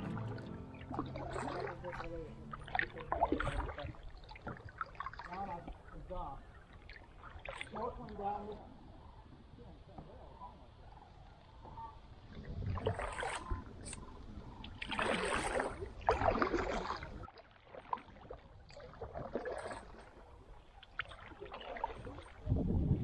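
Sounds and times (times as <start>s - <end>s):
kayak paddle splashing in water: 0.0s - 8.3s, 12.4s - 14.1s, 14.7s - 22.5s.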